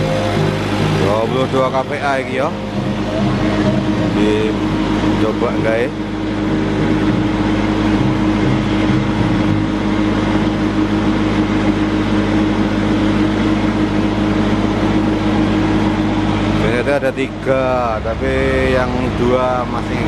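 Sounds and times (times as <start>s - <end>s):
diesel generator running: 0.0s - 20.0s.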